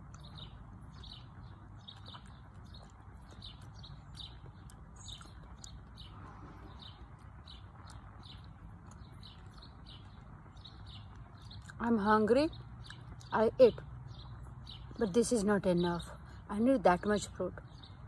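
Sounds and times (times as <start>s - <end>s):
faint low rumble: 0.0s - 13.3s
small birds chirping: 0.0s - 18.0s.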